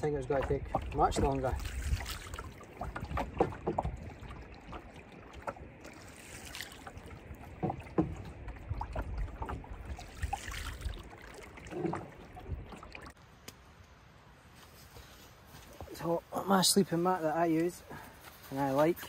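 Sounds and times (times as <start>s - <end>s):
paddle pulling through water: 0.0s - 13.2s
small splashes and drips: 0.0s - 13.2s.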